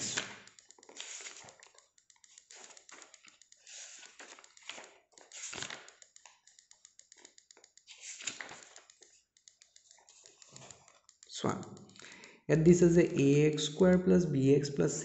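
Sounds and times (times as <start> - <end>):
paper pages turning: 0.0 - 1.8, 2.5 - 6.0, 7.9 - 9.1, 9.9 - 10.8.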